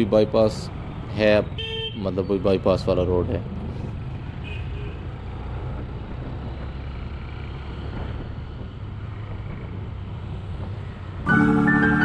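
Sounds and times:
road noise: 0.0 - 12.0
motorcycle engine hum: 3.2 - 12.0
wind noise: 7.6 - 11.3.

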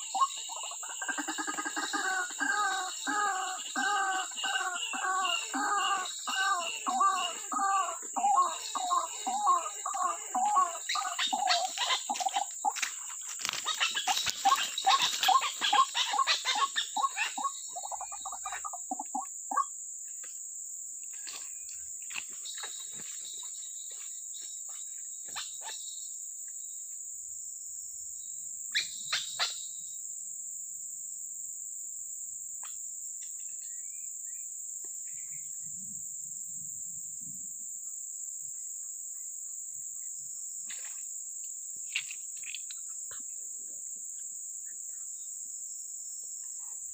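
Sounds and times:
bird croaking calls: 0.0 - 19.7
crickets droning: 0.0 - 46.9.

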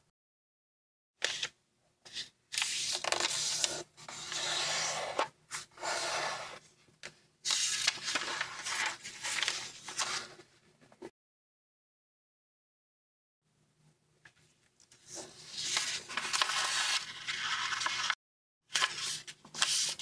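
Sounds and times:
paper rustling and sliding: 2.1 - 6.7, 7.4 - 10.5, 14.9 - 20.0.

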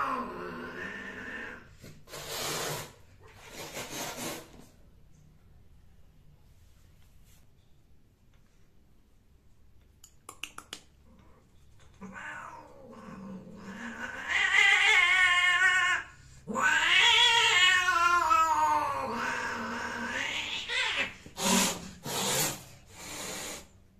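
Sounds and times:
cat yowling: 12.0 - 21.6.

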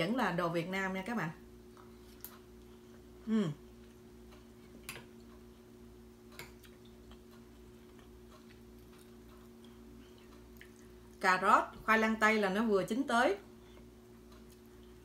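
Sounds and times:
steady low hum: 0.0 - 15.0
person murmuring mm: 3.2 - 3.7.

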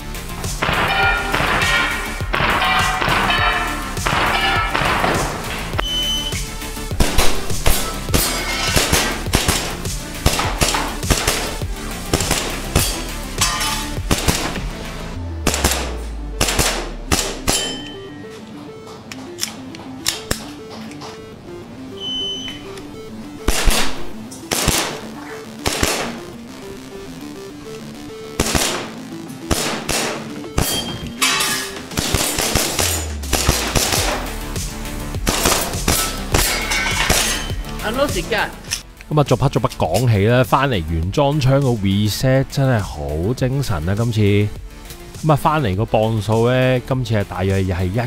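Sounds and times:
background music: 0.0 - 48.0
airsoft pistol shots: 7.0 - 13.0, 14.1 - 14.6, 15.4 - 17.8, 23.5 - 26.2, 28.4 - 31.0, 31.9 - 34.3, 35.2 - 36.5.

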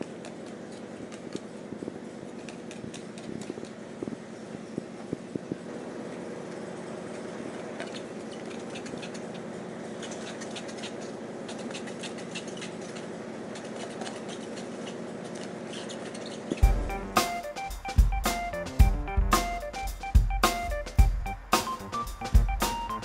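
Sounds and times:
steady low hum: 0.0 - 23.0
cat chewing plastic straw: 6.6 - 16.6.

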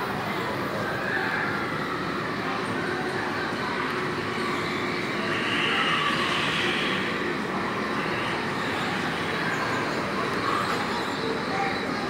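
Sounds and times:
high whine: 3.6 - 10.4.

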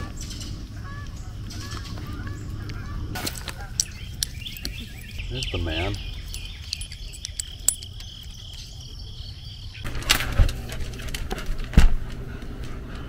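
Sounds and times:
insects droning shrilly: 0.2 - 9.9.

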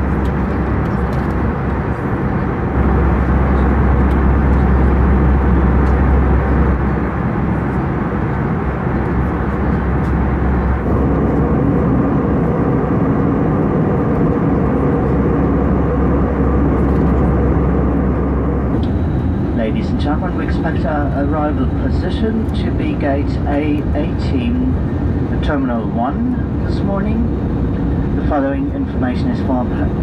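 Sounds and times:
jet engine drone: 0.0 - 30.0
air rushing past fuselage: 2.6 - 22.0.

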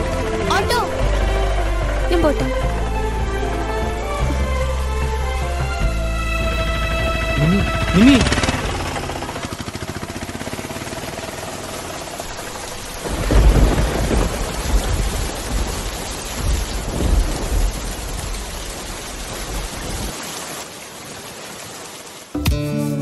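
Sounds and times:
steady rain: 0.0 - 22.4
rolling thunder rumble: 12.6 - 20.1.

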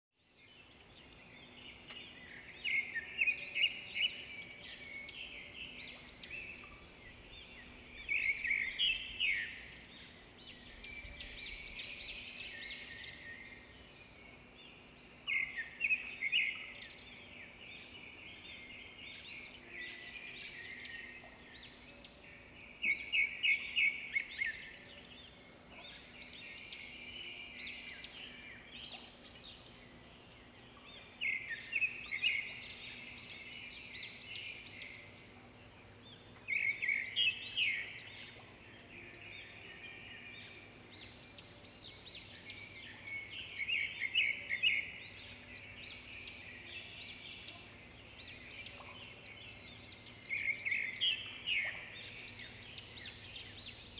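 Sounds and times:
small birds singing: 0.2 - 53.9.

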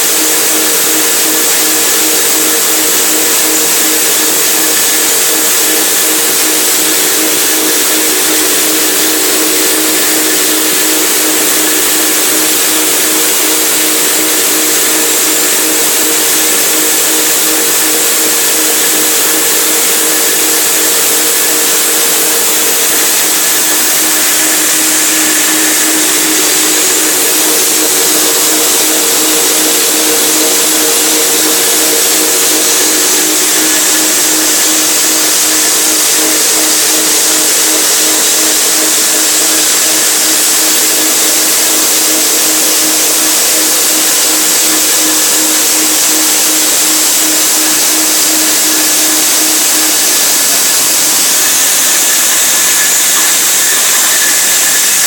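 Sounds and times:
electric motor humming: 0.0 - 55.0
even rushing noise: 20.8 - 36.2.

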